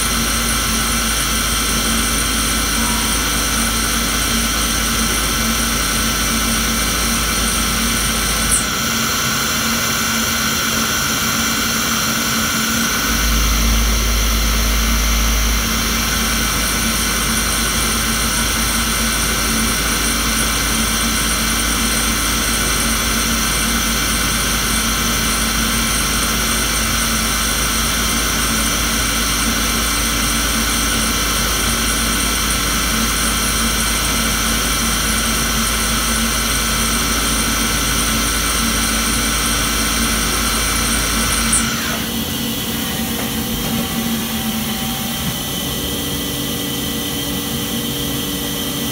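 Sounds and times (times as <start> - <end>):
high whining drive tones: 0.0 - 20.6, 37.4 - 48.8
lathe machine hum: 0.0 - 48.9.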